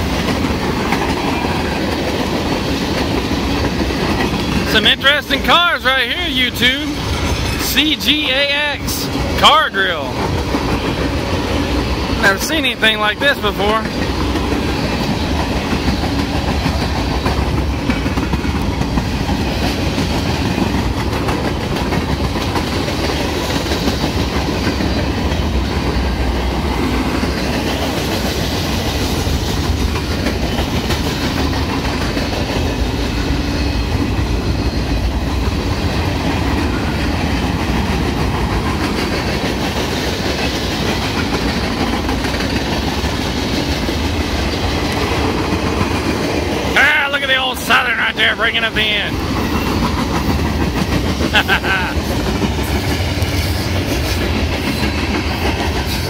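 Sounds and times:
freight train wheels rumbling: 0.0 - 56.0.

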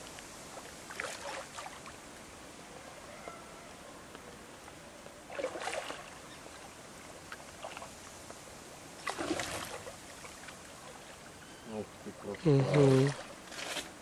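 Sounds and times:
steady background hiss: 0.0 - 14.0
water splashing against boat: 0.5 - 2.0, 5.3 - 6.7, 9.0 - 11.2, 12.1 - 14.0.

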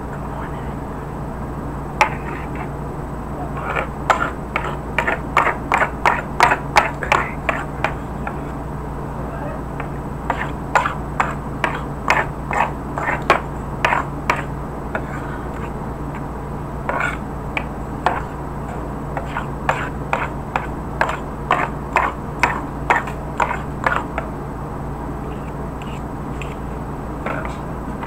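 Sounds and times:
steady low hum: 0.0 - 28.0
cutlery scraping on a plate: 2.0 - 2.7, 3.6 - 8.4, 9.8 - 15.8, 16.9 - 17.2, 18.1 - 24.1, 25.4 - 26.6.

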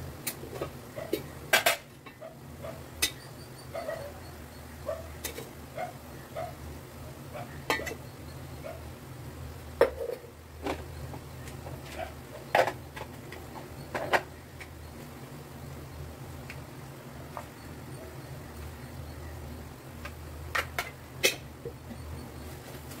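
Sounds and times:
steady low hum: 0.0 - 23.0
metal utensils clinking on pans: 3.0 - 3.2, 7.6 - 8.0, 20.6 - 21.5.

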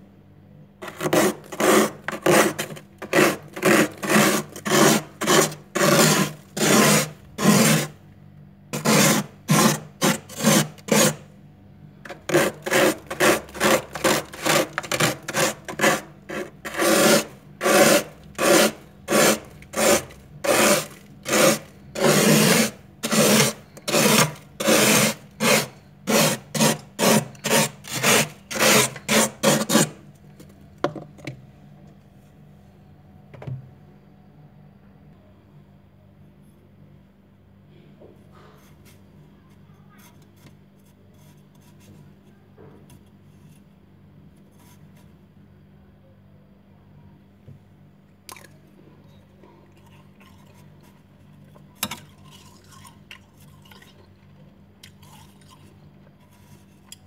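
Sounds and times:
frost being scraped: 0.8 - 8.0, 8.7 - 11.3, 12.1 - 30.0.

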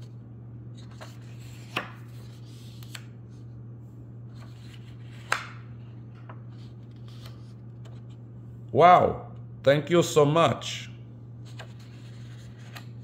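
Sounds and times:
steady low hum: 0.0 - 13.0
book pages turning: 0.7 - 3.5, 4.3 - 8.2, 11.4 - 13.0
paper rustling: 11.4 - 13.0.

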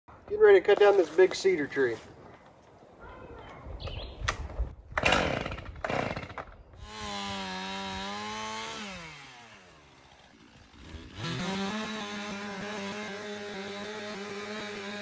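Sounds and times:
chainsaw starter cord pulls: 4.9 - 8.0
chainsaw engine running: 5.0 - 15.0.

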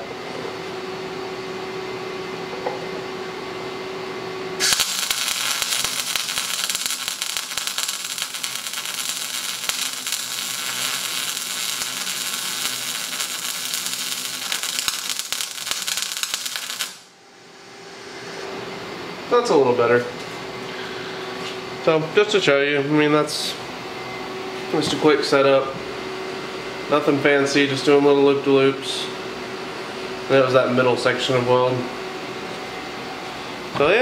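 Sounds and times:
steady hum: 0.0 - 34.0
welding arc crackling: 4.6 - 17.1.

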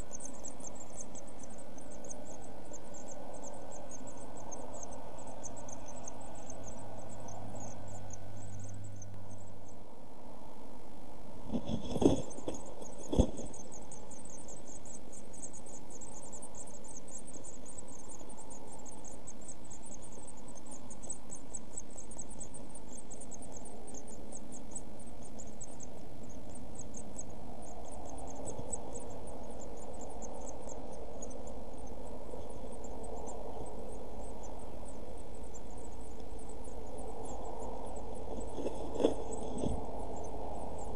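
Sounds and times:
low electrical hum: 0.0 - 40.9.

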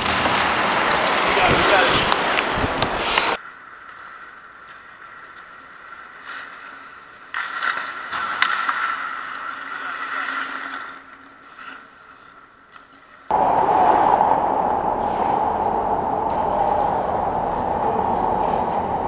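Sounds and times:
skate blades scraping on ice: 0.0 - 3.4, 4.0 - 13.3
steady rushing noise: 0.0 - 3.4, 13.3 - 19.0.

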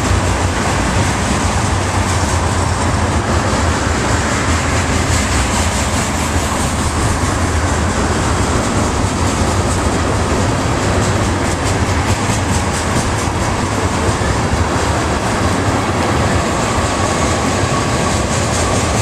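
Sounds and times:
freight train wheels rumbling: 0.0 - 19.0
rail joint clicking: 0.0 - 19.0.

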